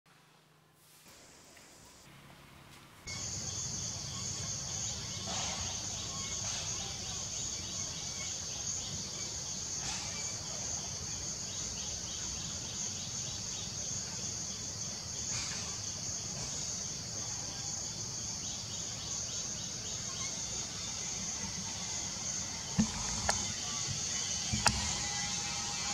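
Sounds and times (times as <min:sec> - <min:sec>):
high-pitched insect chorus: 0:03.1 - 0:25.9.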